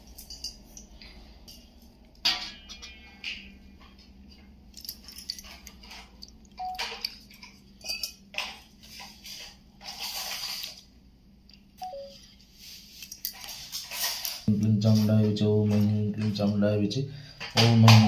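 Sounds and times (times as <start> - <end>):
metal vessels clinking: 0.0 - 4.1, 4.7 - 10.8.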